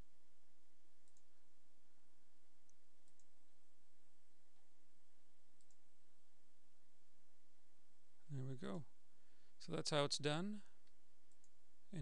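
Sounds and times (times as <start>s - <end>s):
low electrical hum: 0.0s - 12.0s
computer mouse clicks: 1.0s - 1.3s, 2.6s - 3.3s, 5.6s - 5.8s, 10.8s - 11.6s.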